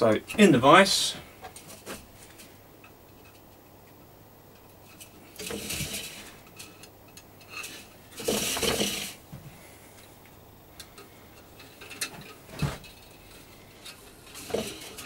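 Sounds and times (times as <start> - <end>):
scraping rustle: 4.8 - 9.8, 11.1 - 15.0.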